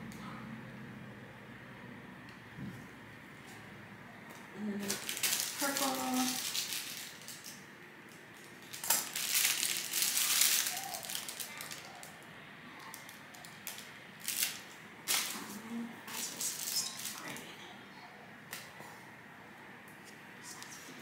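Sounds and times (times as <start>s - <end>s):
plastic bags crinkling: 4.8s - 17.5s.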